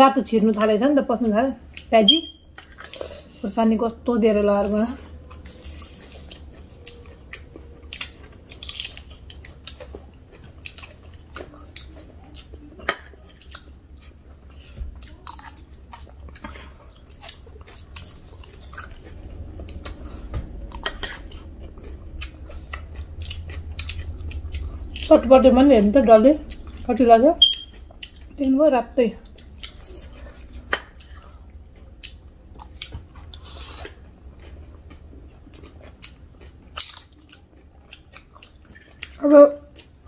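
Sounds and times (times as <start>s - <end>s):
steady low hum: 0.0s - 40.0s
people crunching crisp snacks: 4.7s - 12.6s, 29.4s - 40.0s.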